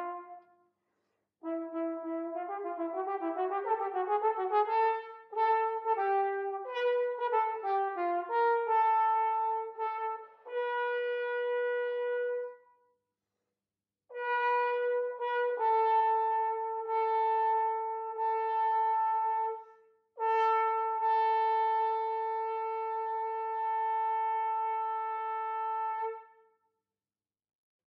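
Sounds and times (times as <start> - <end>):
solo trombone: 0.0 - 0.5, 1.4 - 12.6, 14.1 - 26.4.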